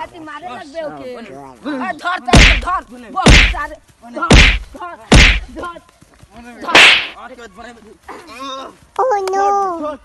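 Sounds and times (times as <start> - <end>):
loud heavy whacks: 2.3 - 3.7, 4.3 - 5.6, 6.7 - 7.2.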